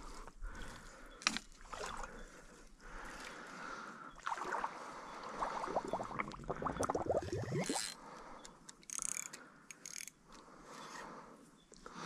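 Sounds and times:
water splashing and sloshing: 0:00.6 - 0:03.6, 0:04.2 - 0:08.0
fishing reel clicking: 0:08.7 - 0:10.2.

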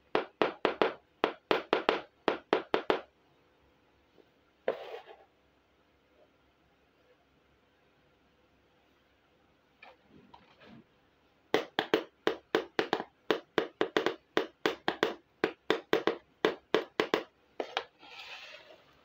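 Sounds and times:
plastic scraping slide: 0:17.7 - 0:19.0.

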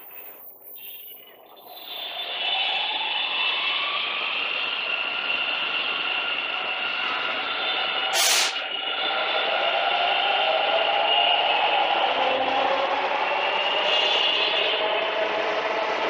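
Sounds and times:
rolling rail noise: 0:00.0 - 0:16.0
short hiss: 0:08.1 - 0:08.6.

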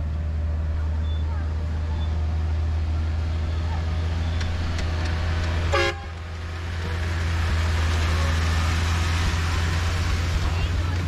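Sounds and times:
train running rumble: 0:00.0 - 0:11.0
locomotive horn toot: 0:05.7 - 0:06.2.

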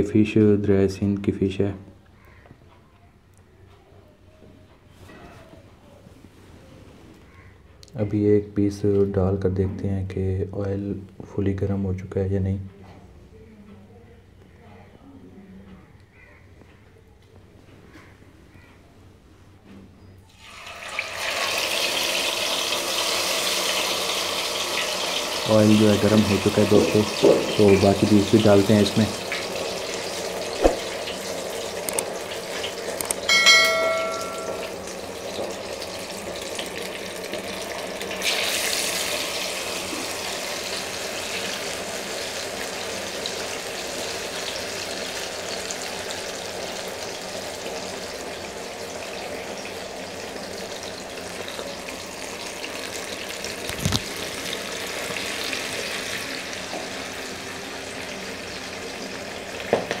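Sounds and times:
fish sizzling in hot oil: 0:20.3 - 1:00.0
low knock: 0:30.6 - 0:30.9
short metallic ring: 0:33.3 - 0:34.8.

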